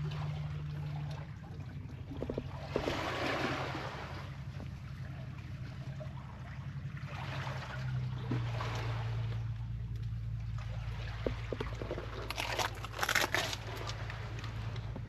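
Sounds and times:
low hum: 0.0 - 15.0
small sea waves washing: 0.0 - 15.0.

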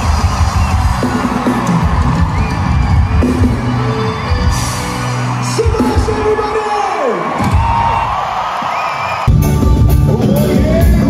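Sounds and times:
live band playing loudly: 0.0 - 8.2, 9.2 - 11.0
audience whooping and cheering: 0.0 - 9.7
bass line: 9.3 - 11.0.

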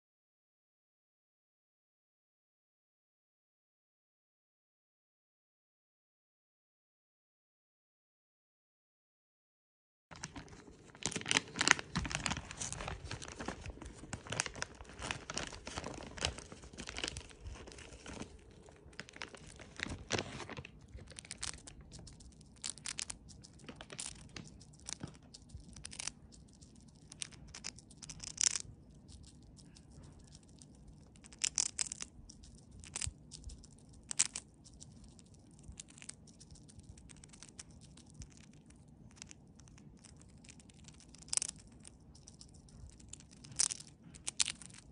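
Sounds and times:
foil snack bag crinkling: 10.2 - 44.9
chipmunk crunching a chip: 10.5 - 44.9.

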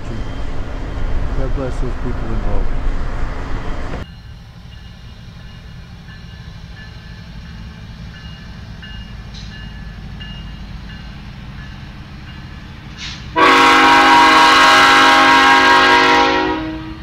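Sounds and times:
freight train rumbling: 0.0 - 17.0
locomotive air horn: 13.0 - 17.0.

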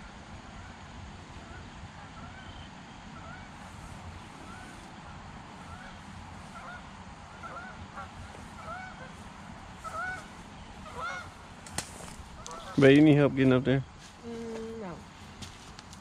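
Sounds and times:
low steady rumble: 0.0 - 16.0
geese honking: 0.5 - 13.1.

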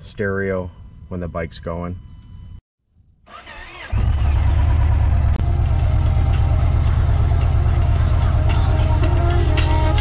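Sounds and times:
motorcycle engine idling: 4.0 - 10.0.

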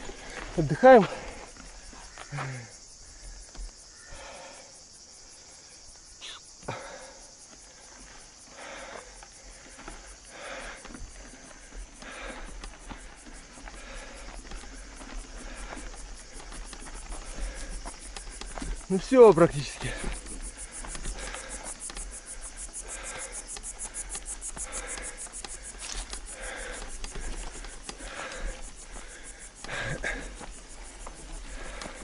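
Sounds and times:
insects trilling: 0.0 - 32.0.

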